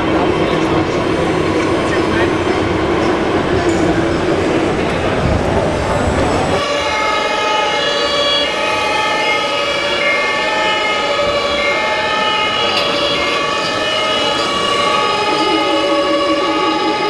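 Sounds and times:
rumbling hall noise: 0.0 - 17.0
toy siren tones: 12.4 - 17.0.

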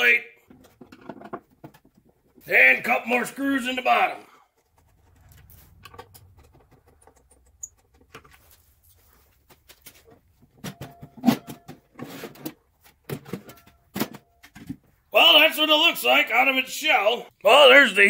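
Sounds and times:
sheet metal scraping out of box: 11.2 - 12.6.

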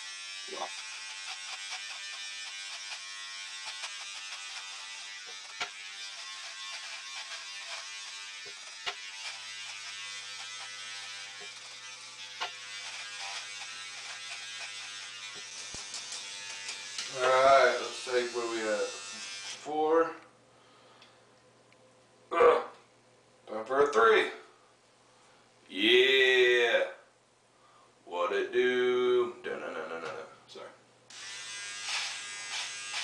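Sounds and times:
electric beard trimmer buzzing: 0.0 - 19.7, 31.1 - 33.0.

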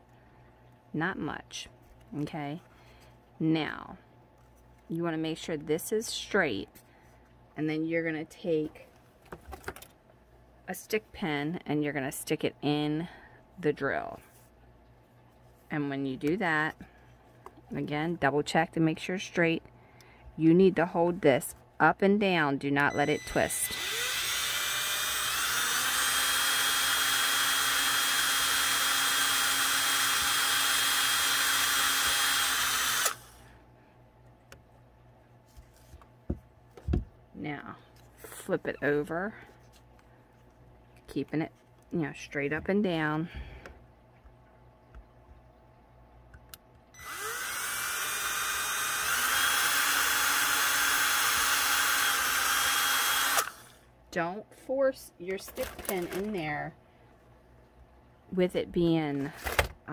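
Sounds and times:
cordless drill motor whine: 22.9 - 33.4, 47.0 - 53.7.

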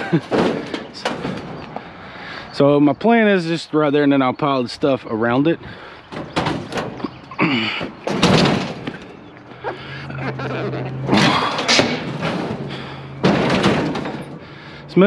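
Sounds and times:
heavy thuds and scraping: 0.0 - 2.1, 5.4 - 15.0
loud knocks: 0.1 - 1.6, 6.1 - 9.2, 11.1 - 14.7.

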